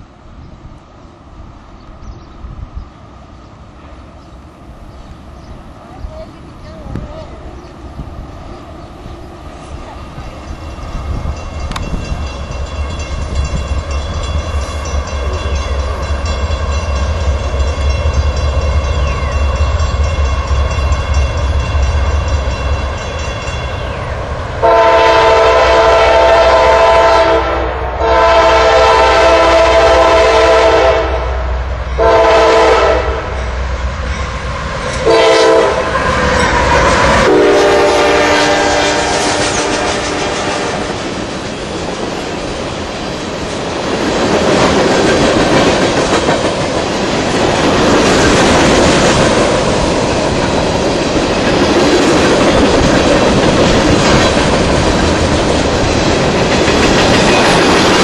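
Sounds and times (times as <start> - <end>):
freight train rumbling past: 0.0 - 58.0
locomotive air horn blasts: 24.6 - 33.4, 35.0 - 36.1, 37.2 - 40.8.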